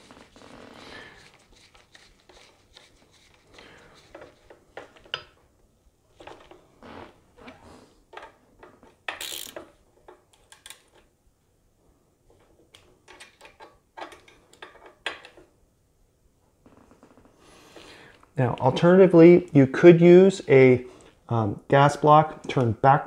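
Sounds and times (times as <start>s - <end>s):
gloves rubbing on parts: 0.0s - 5.1s.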